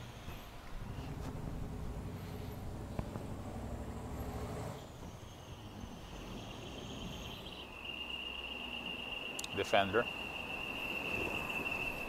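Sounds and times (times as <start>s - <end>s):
steady high-pitched drone: 5.2s - 12.0s.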